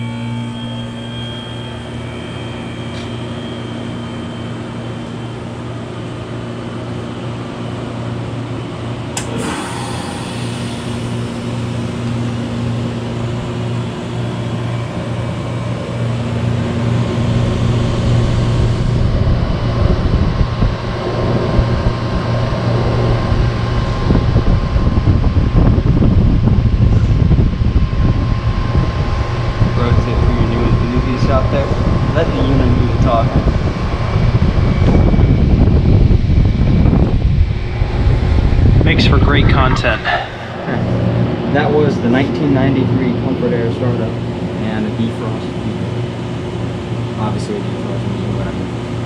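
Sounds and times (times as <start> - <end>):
compressor hum: 0.0 - 49.0
sharp click: 9.2 - 9.8
air rushing: 9.2 - 14.8, 34.0 - 43.2.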